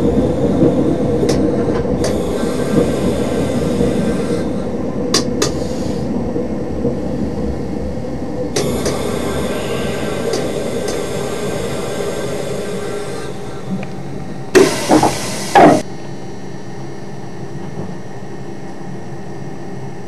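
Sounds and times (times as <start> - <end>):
railcar engine running: 0.0 - 20.0
bright hiss: 8.6 - 15.8.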